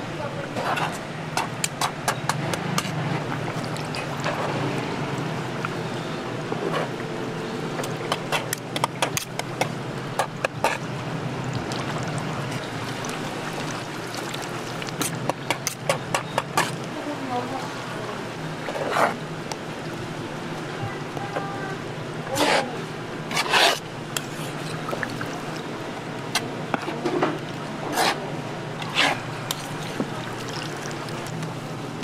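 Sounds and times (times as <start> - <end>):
spatula scraping on cutting board: 22.3 - 22.7, 23.3 - 24.6, 27.9 - 28.2, 28.8 - 29.2.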